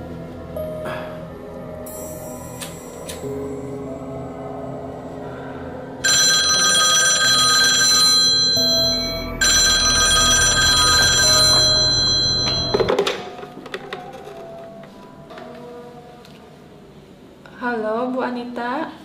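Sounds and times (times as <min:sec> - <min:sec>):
landline telephone ringing: 0:06.0 - 0:13.3.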